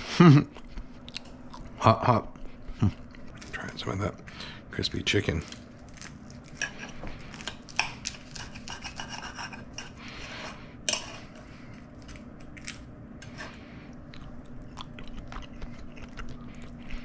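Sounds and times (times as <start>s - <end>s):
knife sawing crispy chicken skin: 8.2s - 10.6s.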